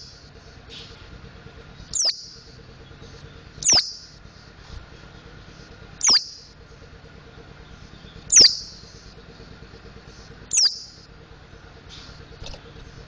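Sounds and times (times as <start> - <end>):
bird calling sharp whistles: 1.9 - 2.5, 3.6 - 4.2, 6.0 - 6.6, 7.9 - 9.1, 10.5 - 11.0.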